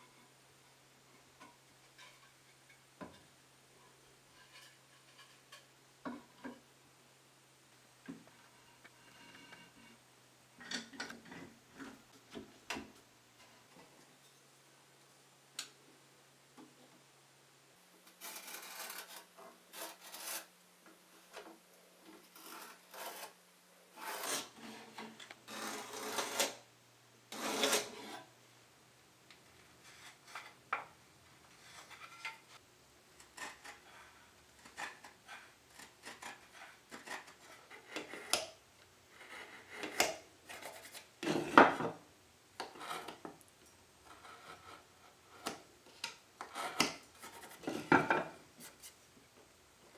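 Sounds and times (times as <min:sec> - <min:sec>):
knife scraping along wood: 0:18.1 - 0:20.5, 0:22.1 - 0:26.6, 0:27.3 - 0:28.3, 0:31.6 - 0:32.6, 0:33.2 - 0:41.9, 0:42.6 - 0:43.3, 0:44.0 - 0:49.0.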